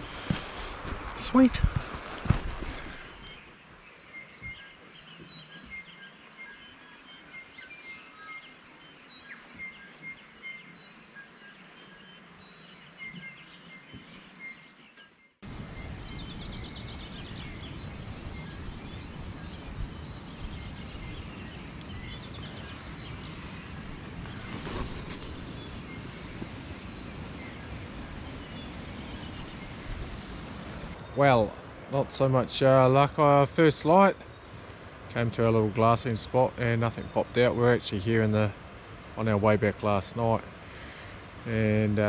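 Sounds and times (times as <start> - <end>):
wind on microphone: 0.0 - 3.4, 15.5 - 31.9.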